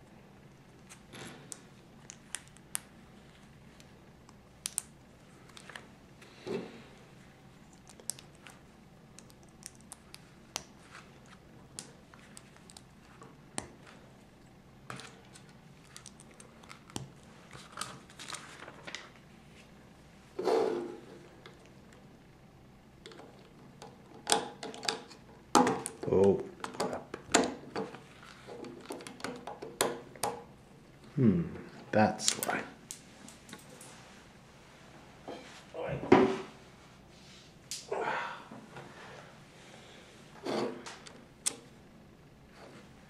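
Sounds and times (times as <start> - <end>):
soft rustles: 33.0 - 35.8.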